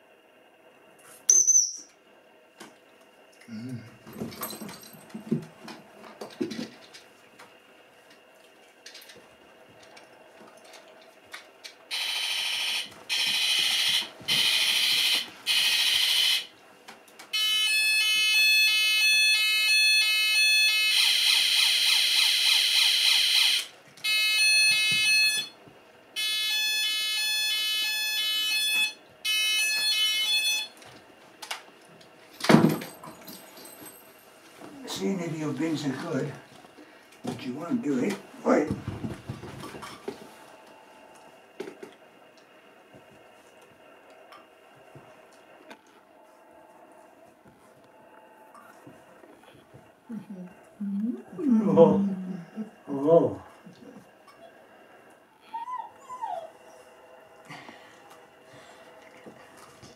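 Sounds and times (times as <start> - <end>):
electronic alarm tones: 11.9 - 16.5, 17.3 - 25.6, 26.2 - 30.8.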